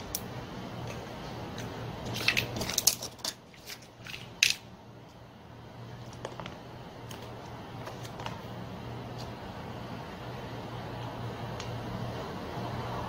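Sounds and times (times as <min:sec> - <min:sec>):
steady low hum: 0:00.0 - 0:13.0
small metal parts clinking: 0:01.6 - 0:04.7.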